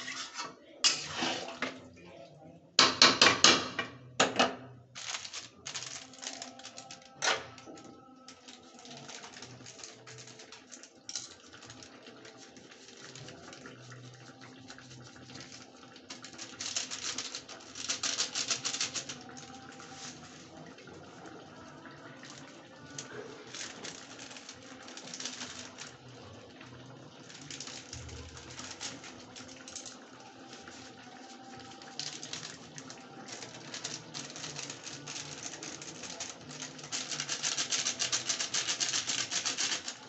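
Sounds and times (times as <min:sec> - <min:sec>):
spatula scraping a pan: 0:00.0 - 0:01.7
curry sizzling and spluttering: 0:00.0 - 0:02.0, 0:04.8 - 0:40.0.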